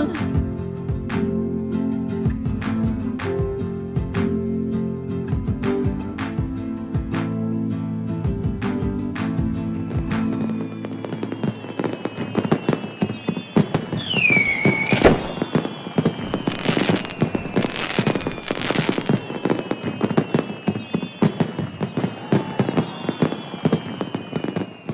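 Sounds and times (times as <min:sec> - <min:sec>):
fireworks crackling and popping: 0:09.8 - 0:24.9
falling firework whistle: 0:09.9 - 0:24.9.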